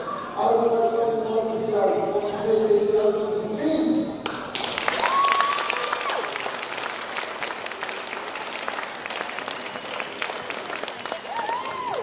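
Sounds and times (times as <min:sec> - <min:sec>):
crowd applause: 0:04.6 - 0:12.0.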